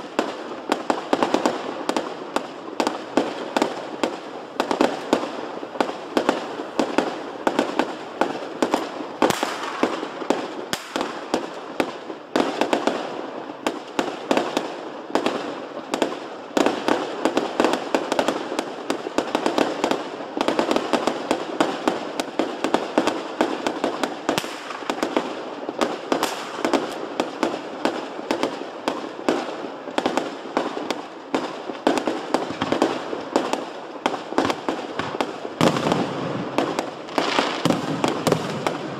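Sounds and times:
fireworks bangs and crackling: 0.0 - 38.9.

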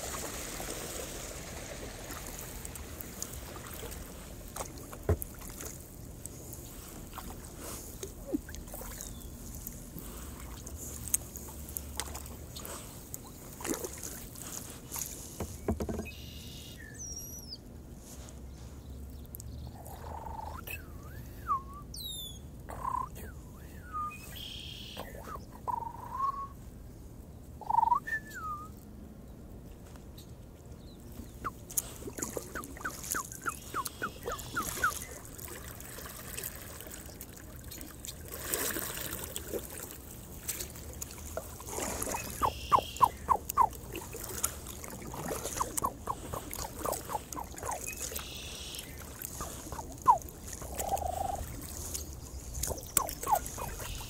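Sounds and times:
water dripping off paddle: 0.0 - 16.2, 31.4 - 54.0
paddle knocks and clicks: 4.6 - 5.8, 15.0 - 16.2
birds calling: 30.2 - 35.6, 41.3 - 54.0.

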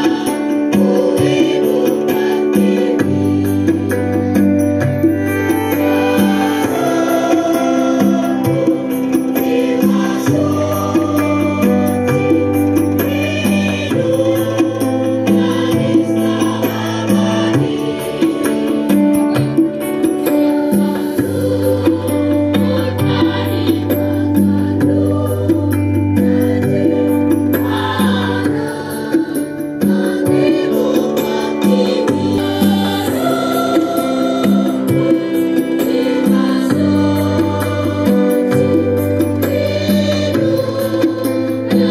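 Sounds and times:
massed choir singing: 0.0 - 41.9.

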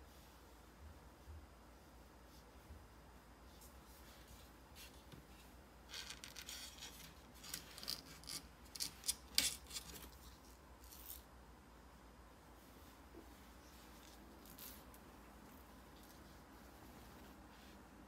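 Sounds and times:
puppy claws scratching on floor: 13.8 - 16.4.

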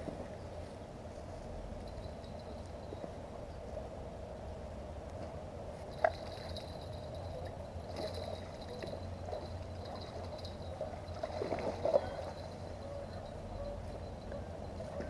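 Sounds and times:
water splashing and gurgling: 7.8 - 12.8.

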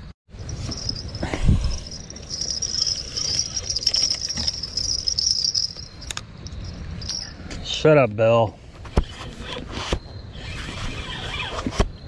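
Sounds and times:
bite bell jingling: 0.4 - 7.5.

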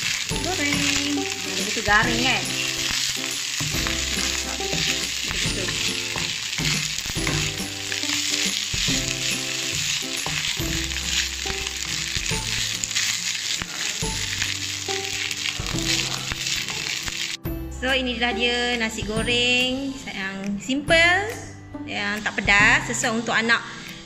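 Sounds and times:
wooden spatula stirring: 0.0 - 17.4
rice sizzling in a wok: 0.0 - 17.5.

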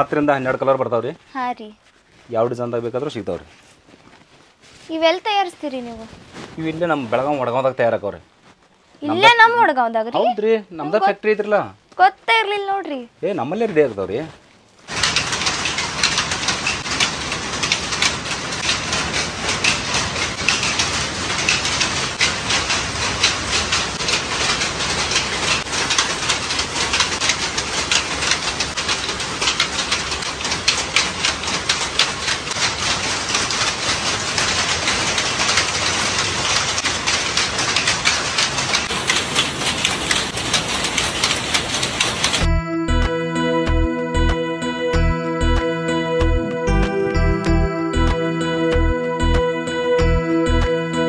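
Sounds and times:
power looms clattering: 14.9 - 42.5.

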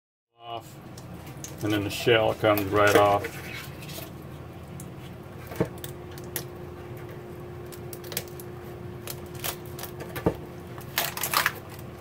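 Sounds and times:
faint steady hum: 0.4 - 12.0
crab shell cracking: 4.8 - 6.6, 7.6 - 12.0.

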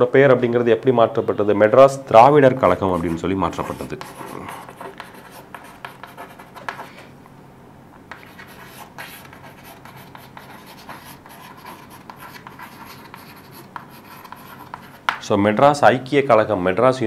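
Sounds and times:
chalk scratching on chalkboard: 2.6 - 7.1, 8.1 - 15.2.

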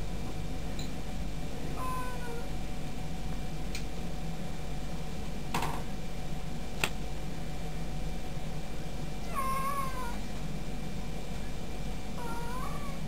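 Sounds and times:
steady low hum: 0.0 - 13.0
cat meowing: 1.8 - 2.5, 9.2 - 10.2, 12.2 - 13.0.

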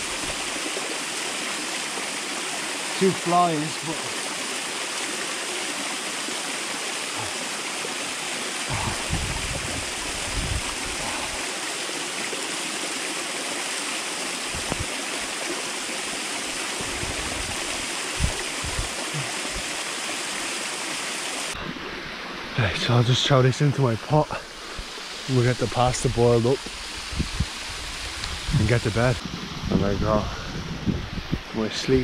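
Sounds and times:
waterfall splashing: 0.0 - 22.0
low thumps: 8.7 - 11.0, 14.5 - 14.9, 16.8 - 19.6.

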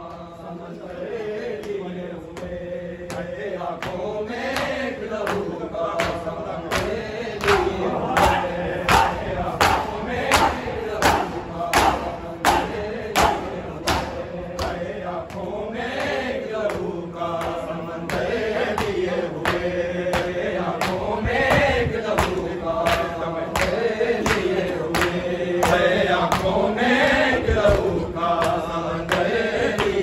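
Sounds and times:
men chanting in unison: 0.0 - 30.0
hands slapping chests: 3.1 - 26.6.

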